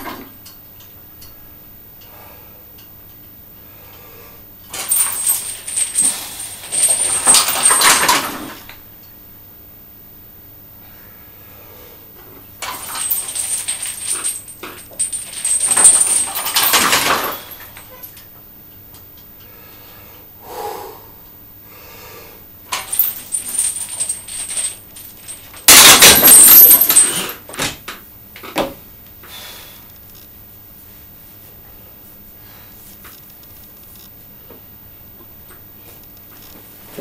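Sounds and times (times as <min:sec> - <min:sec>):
barbell chains jangling: 0:04.7 - 0:08.7, 0:12.6 - 0:18.2, 0:22.7 - 0:27.4.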